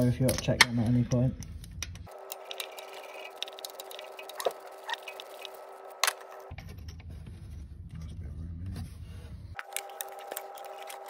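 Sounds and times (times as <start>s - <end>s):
steady hum: 1.4s - 6.6s.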